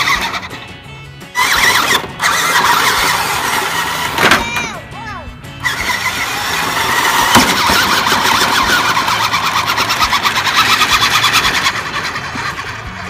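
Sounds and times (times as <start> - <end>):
rc truck motor whirring: 0.0 - 4.8, 5.5 - 13.0.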